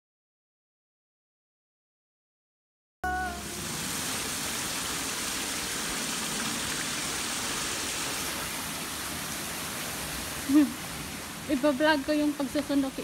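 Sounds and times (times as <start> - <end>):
brief pitched tone: 3.0 - 3.6
steady rushing hiss: 3.4 - 13.0.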